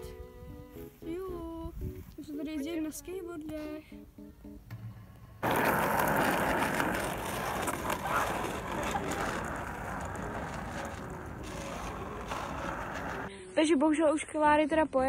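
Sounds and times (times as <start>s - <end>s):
skateboard wheels rolling on asphalt: 5.4s - 13.3s.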